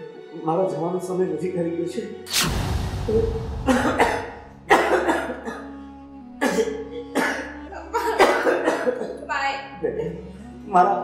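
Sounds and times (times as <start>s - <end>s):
soft background music: 0.0s - 11.0s
man coughing: 3.7s - 5.7s, 6.4s - 7.5s, 8.1s - 9.1s.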